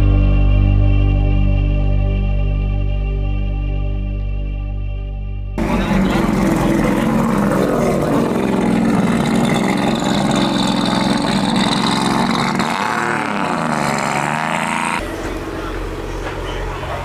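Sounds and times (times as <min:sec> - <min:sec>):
car engine running: 0:05.6 - 0:17.0.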